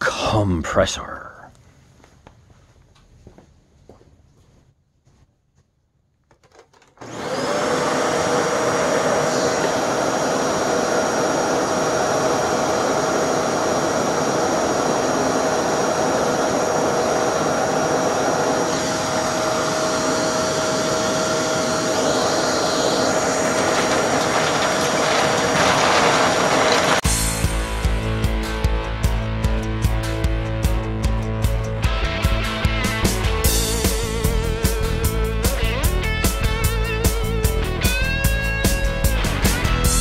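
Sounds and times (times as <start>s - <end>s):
vacuum cleaner motor whine: 6.9s - 27.2s.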